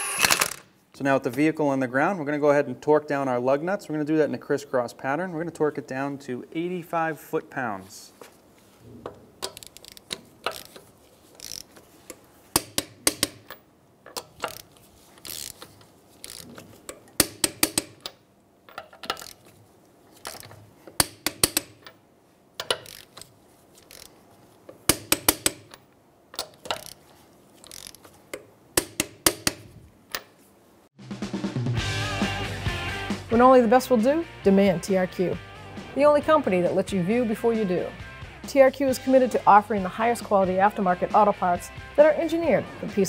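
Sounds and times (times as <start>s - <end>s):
torque wrench ratcheting clicks: 9.4s - 10.8s, 11.4s - 11.8s, 14.2s - 18.2s, 19.0s - 19.4s, 22.6s - 24.1s, 26.4s - 27.0s, 27.6s - 28.0s.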